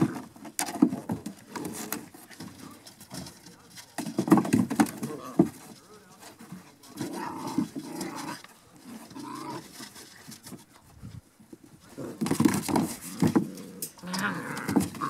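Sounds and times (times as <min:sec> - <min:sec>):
puppies growling and yapping: 0:07.0 - 0:10.2, 0:11.9 - 0:15.0.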